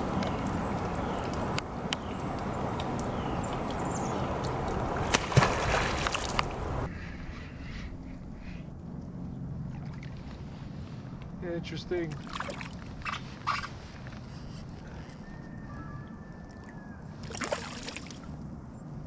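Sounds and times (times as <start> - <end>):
water sloshing and lapping: 0.0 - 6.9, 9.6 - 11.4, 12.0 - 15.2, 16.4 - 18.4.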